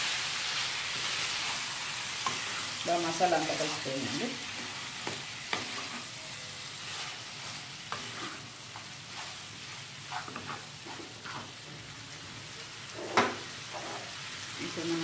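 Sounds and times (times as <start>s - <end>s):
chicken sizzling in a pan: 0.0s - 15.0s
wooden spatula scraping pan: 2.2s - 6.2s, 6.8s - 11.6s, 13.0s - 14.1s.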